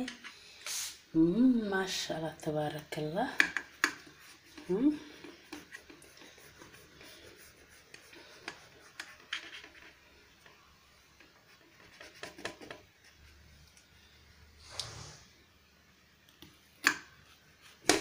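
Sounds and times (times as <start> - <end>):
knife scratching through cake: 3.6 - 10.0.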